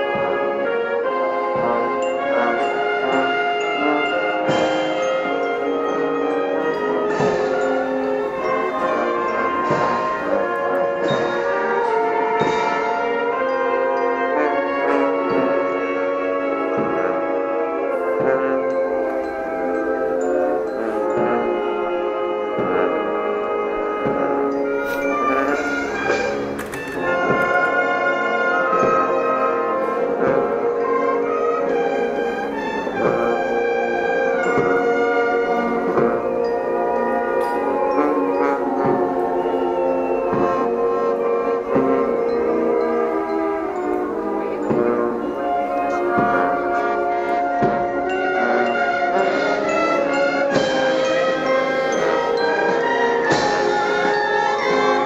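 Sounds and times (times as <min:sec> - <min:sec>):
bells ringing: 0:00.0 - 0:55.0
brass band playing slow chords: 0:00.0 - 0:55.0.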